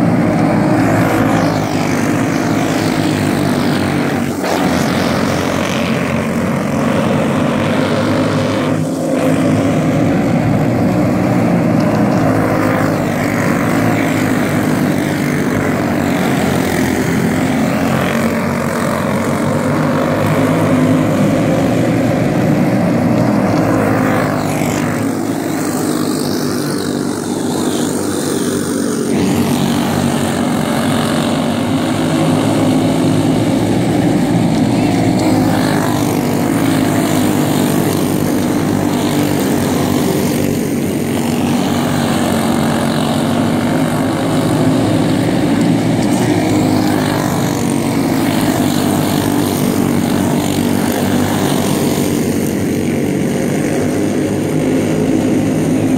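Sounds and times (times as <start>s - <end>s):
go-kart engines buzzing: 0.0s - 55.9s.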